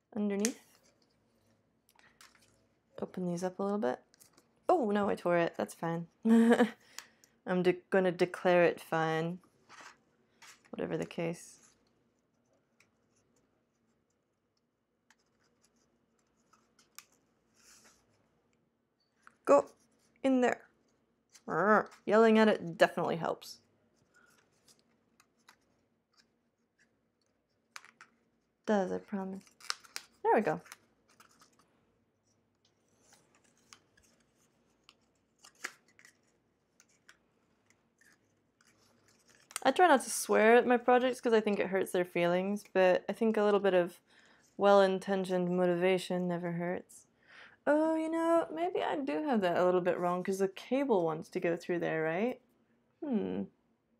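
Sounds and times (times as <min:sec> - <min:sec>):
paper card ticks and scratches: 0:15.0 - 0:18.2, 0:24.0 - 0:28.2, 0:29.0 - 0:39.7.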